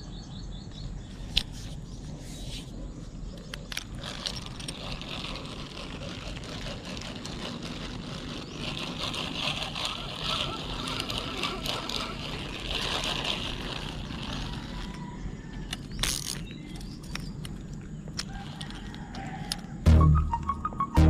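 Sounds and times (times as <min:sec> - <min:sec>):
spinning reel cranking: 0:03.7 - 0:17.2, 0:18.2 - 0:19.6.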